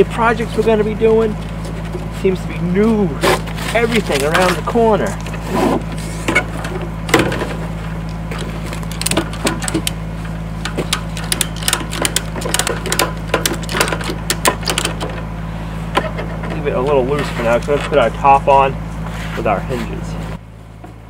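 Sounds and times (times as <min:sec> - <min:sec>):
low hum: 0:00.0 - 0:21.0
ratchet strap clicking: 0:10.6 - 0:15.1.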